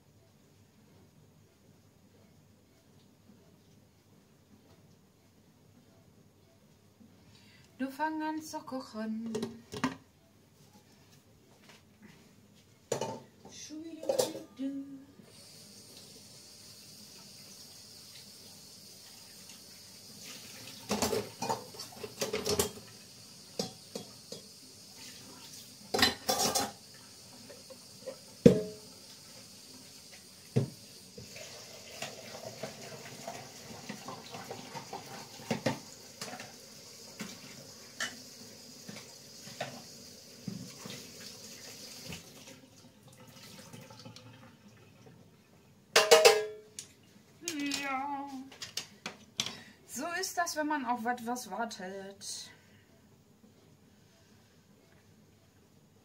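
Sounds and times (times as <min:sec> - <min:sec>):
kitchen utensils clattering: 0:14.0 - 0:14.6, 0:20.8 - 0:22.9, 0:25.9 - 0:26.8, 0:46.0 - 0:46.7
steady hiss: 0:14.6 - 0:42.4.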